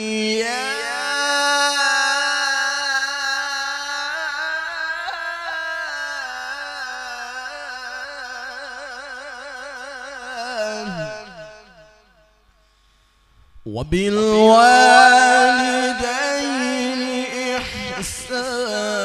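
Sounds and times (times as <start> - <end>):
man reciting in melodic chant: 0.0 - 11.7, 13.6 - 19.0
echo from sound system: 0.0 - 19.0.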